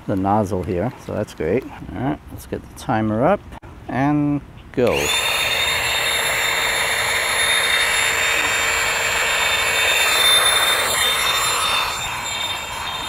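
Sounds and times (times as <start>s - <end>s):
electric air pump whining: 4.9s - 13.0s.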